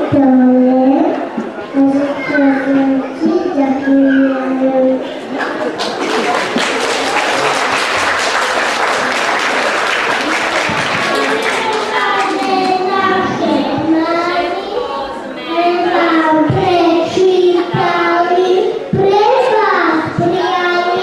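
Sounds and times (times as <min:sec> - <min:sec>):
audience applause: 0:05.4 - 0:13.2
children singing together: 0:11.2 - 0:21.0.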